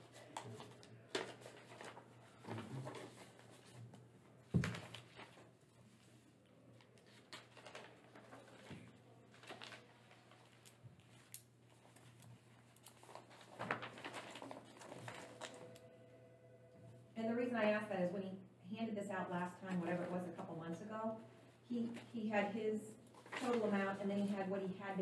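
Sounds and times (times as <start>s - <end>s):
paper rustling: 0.0s - 3.9s, 4.5s - 6.2s, 6.8s - 15.8s, 23.1s - 24.4s
steady low hum: 14.8s - 24.4s.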